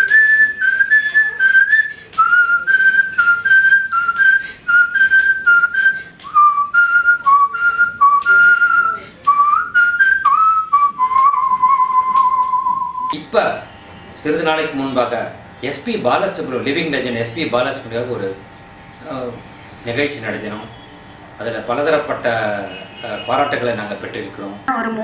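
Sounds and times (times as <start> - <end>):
man whistling a melody: 0.0 - 13.2.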